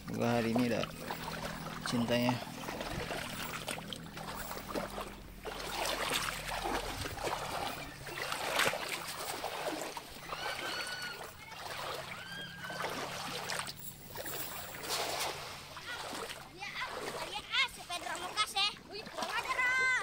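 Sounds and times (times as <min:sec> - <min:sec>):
river water splashing around legs: 0:00.0 - 0:20.0
swish of wet cast net: 0:02.6 - 0:17.4.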